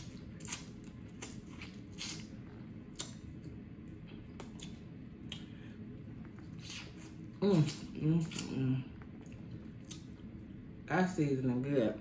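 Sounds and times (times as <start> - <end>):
wet mouth smacks: 0.0 - 3.6, 4.2 - 5.6.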